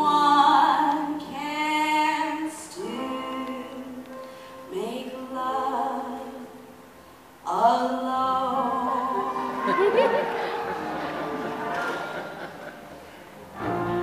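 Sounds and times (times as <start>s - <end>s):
woman singing: 0.0s - 6.7s, 7.5s - 10.2s.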